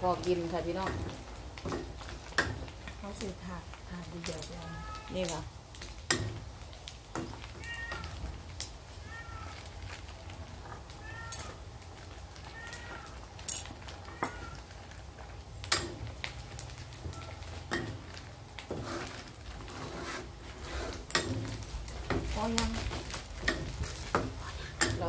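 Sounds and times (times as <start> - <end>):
meat frying in bubbling oil: 0.0 - 25.0
cat meowing: 4.4 - 5.4, 7.5 - 9.8, 10.7 - 13.4, 14.0 - 15.0, 17.0 - 17.6
metal spatula clicking on pan: 15.6 - 16.0, 24.7 - 25.0.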